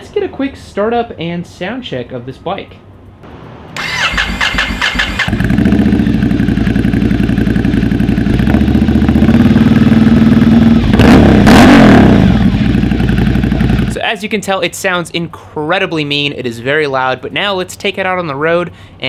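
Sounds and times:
motorcycle starter cranking: 3.8 - 5.6
motorcycle engine idling loudly: 5.2 - 13.9.

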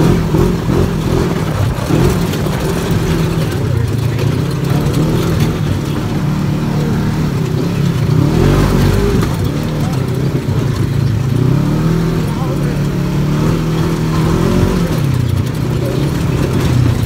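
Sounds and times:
vehicle engine revving: 0.0 - 17.0.

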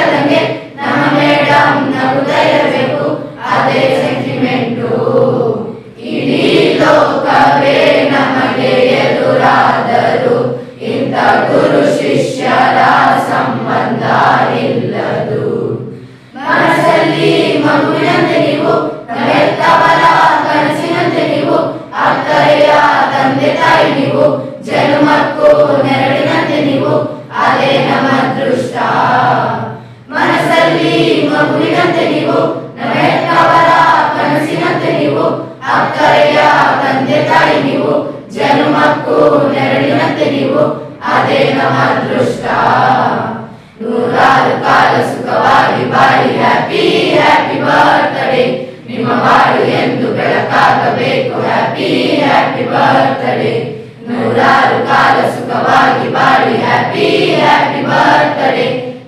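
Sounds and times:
schoolchildren singing together: 0.0 - 59.0.

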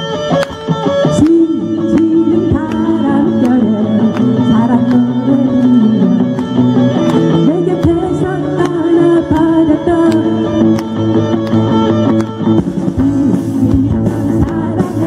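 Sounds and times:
live pop-rock band: 0.0 - 15.0
woman singing: 1.1 - 6.3, 7.4 - 10.6, 12.9 - 15.0.

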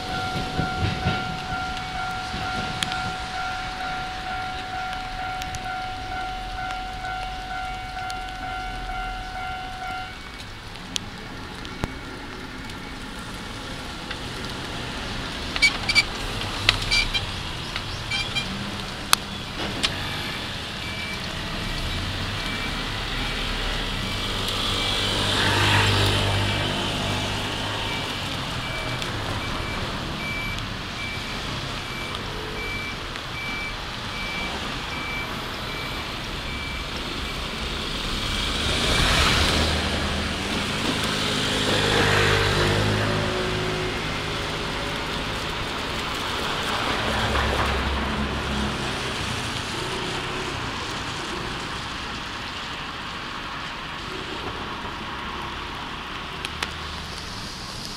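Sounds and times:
train passing: 0.0 - 10.5, 33.3 - 52.9
level-crossing alarm dinging: 0.0 - 10.6.

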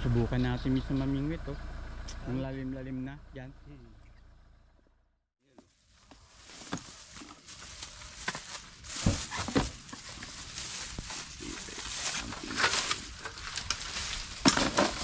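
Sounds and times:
plastic bags rustling: 5.7 - 15.0.

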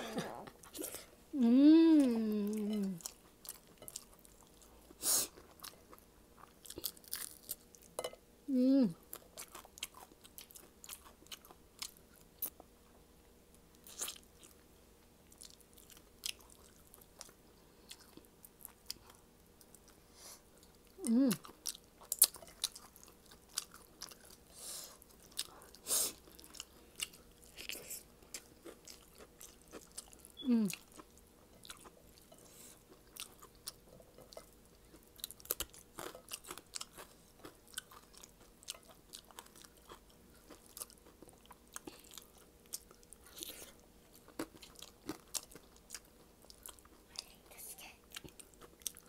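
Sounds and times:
chewing and lip-smacking: 20.6 - 49.0.

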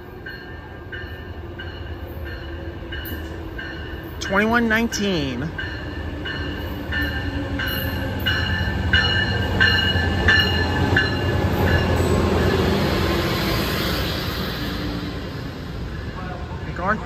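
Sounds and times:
locomotive bell ringing: 0.0 - 12.6
passing train cars rolling and hissing: 0.0 - 17.0
train engine and wheels rumbling: 0.0 - 17.0.

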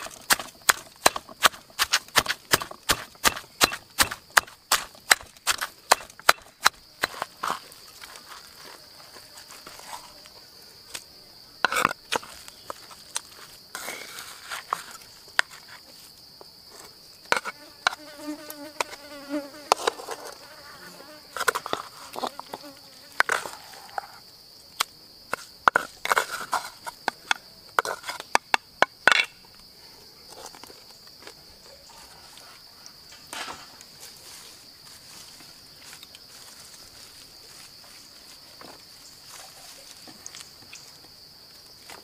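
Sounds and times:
wooden spatula scraping in mortar: 0.0 - 8.5
high insect drone: 2.4 - 42.0
fly buzzing: 17.5 - 23.3.

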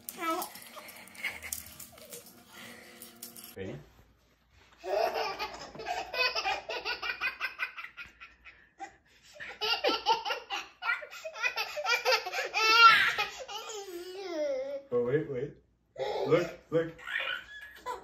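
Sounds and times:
toddler giggling: 4.8 - 8.2.

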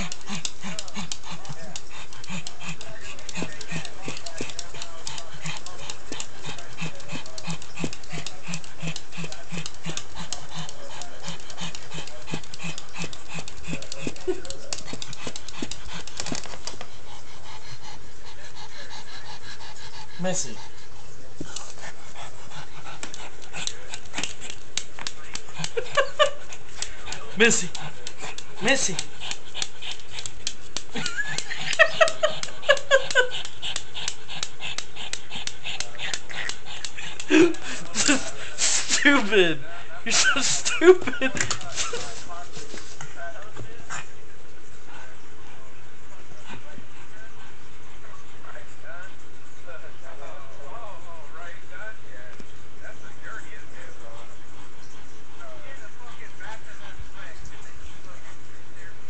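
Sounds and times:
fast even clicking: 0.0 - 16.7
dog panting rapidly: 0.0 - 44.2, 44.8 - 49.4, 53.2 - 58.5.

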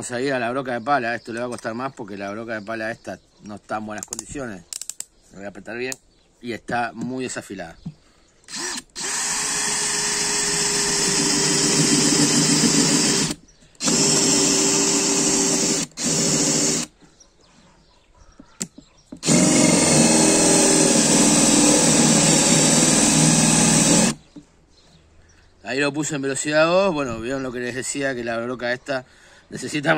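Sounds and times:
cordless drill boring into wood: 8.5 - 16.9, 19.2 - 24.2
drill click: 8.5 - 16.9, 19.1 - 24.2.

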